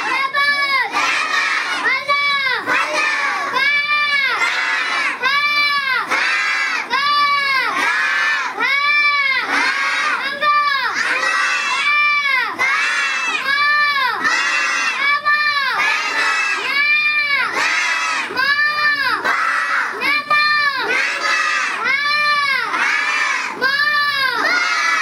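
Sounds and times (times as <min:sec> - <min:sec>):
boy chanting: 0:00.0 - 0:25.0.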